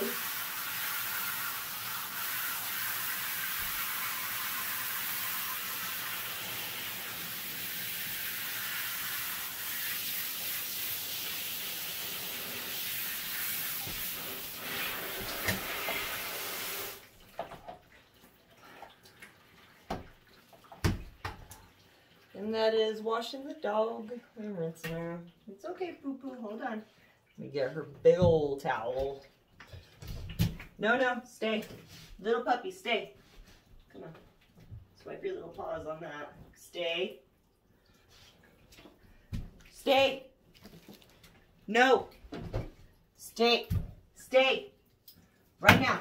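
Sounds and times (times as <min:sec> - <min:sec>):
shower sprayer running: 0:00.0 - 0:17.1.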